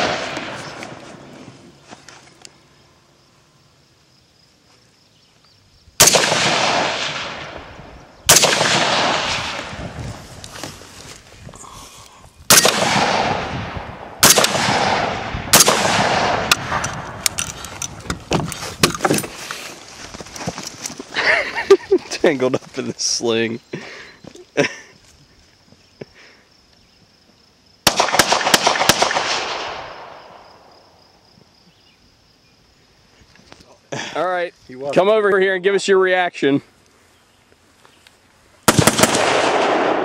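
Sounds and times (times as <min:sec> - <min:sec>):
rifle shots with echo: 0:00.0 - 0:01.0, 0:06.0 - 0:09.9, 0:12.5 - 0:17.2, 0:27.8 - 0:30.7, 0:38.7 - 0:40.0.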